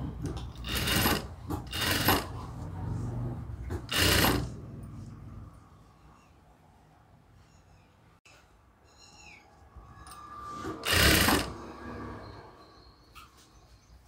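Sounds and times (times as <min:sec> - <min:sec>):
sewing machine stitching: 0:00.2 - 0:02.4, 0:03.7 - 0:04.6, 0:10.6 - 0:11.6.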